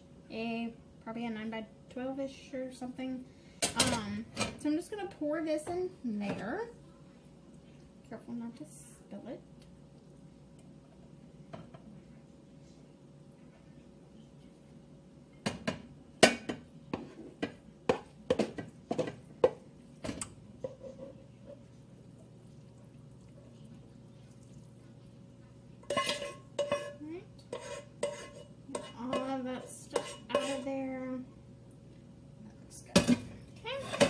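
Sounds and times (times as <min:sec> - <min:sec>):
pan knocking and scraping: 0:15.5 - 0:21.7, 0:25.8 - 0:30.7, 0:33.0 - 0:34.0
pan and utensil clattering: 0:25.8 - 0:30.8, 0:32.9 - 0:34.0.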